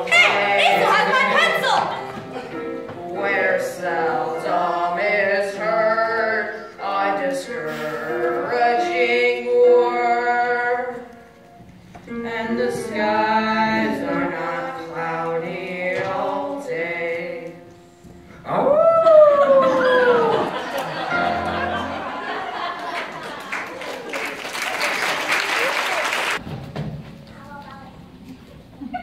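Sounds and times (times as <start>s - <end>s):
young voices singing: 0.0s - 11.2s, 12.1s - 17.7s.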